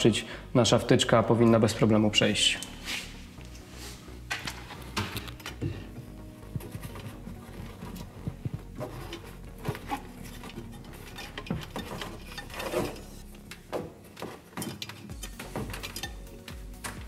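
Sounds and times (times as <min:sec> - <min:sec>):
cable clicking and rubbing in hole: 0:04.3 - 0:05.6, 0:06.4 - 0:17.0.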